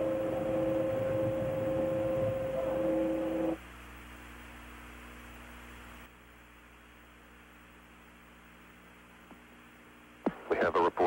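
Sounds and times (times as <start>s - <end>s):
steady tones: 0.0s - 3.6s
faint low hum: 0.0s - 11.0s
radio hiss: 10.2s - 11.0s.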